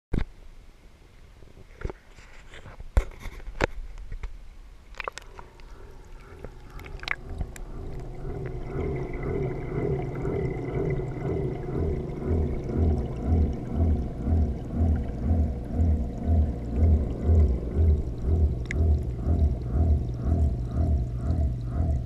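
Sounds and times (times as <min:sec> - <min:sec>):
underwater pump hum with whine: 0:04.6 - 0:22.0.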